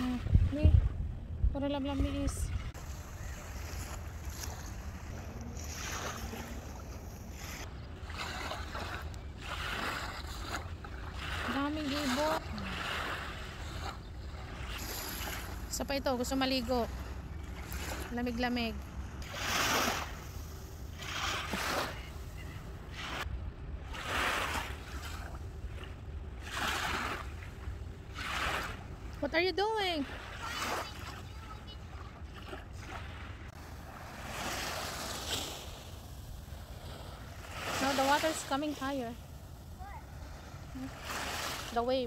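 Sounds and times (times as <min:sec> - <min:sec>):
wind rumbling on microphone: 0:00.0 - 0:14.9
small waves washing in: 0:01.6 - 0:42.0.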